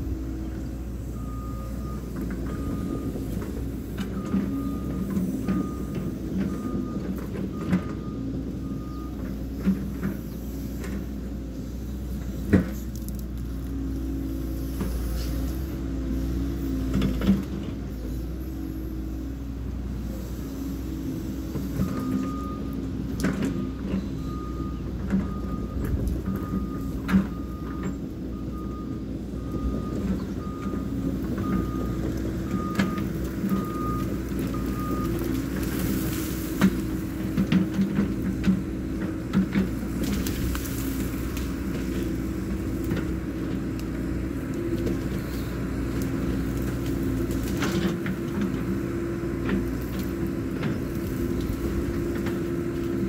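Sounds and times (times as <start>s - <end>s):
diesel engine running: 0.0s - 53.0s
reversing alarm beeping: 1.1s - 3.3s, 4.1s - 9.3s, 21.7s - 22.9s, 23.5s - 35.6s.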